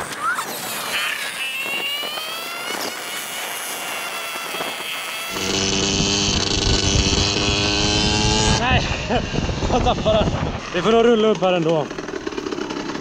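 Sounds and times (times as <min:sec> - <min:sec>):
wind rumble on microphone: 0:01.3 - 0:11.6
dirt bike engine under load: 0:09.8 - 0:13.0.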